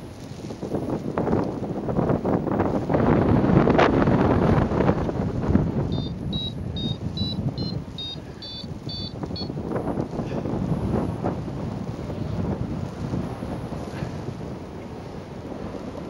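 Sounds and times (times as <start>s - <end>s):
wind buffeting microphone: 0.0s - 16.0s
short high electronic beeps: 5.9s - 9.5s.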